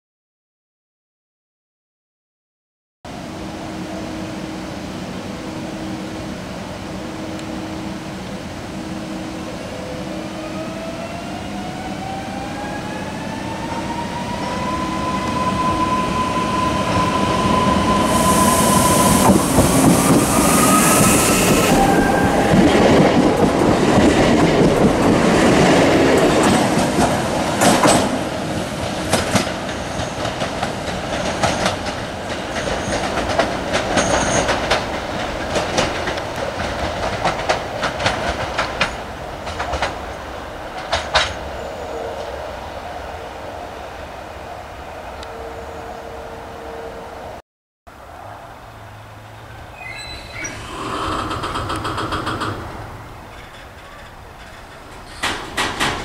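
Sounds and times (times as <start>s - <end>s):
electric train drive whining: 9.4s - 27.8s
wheels clicking over rail joints: 21.8s - 41.4s, 49.9s - 56.0s.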